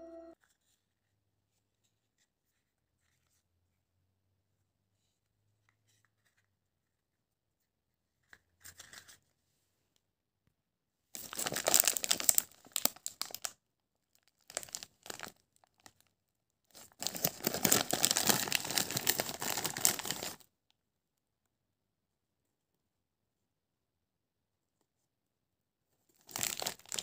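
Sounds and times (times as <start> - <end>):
plastic packet crinkling and tearing: 11.2 - 16.1, 16.7 - 20.5, 26.1 - 27.0.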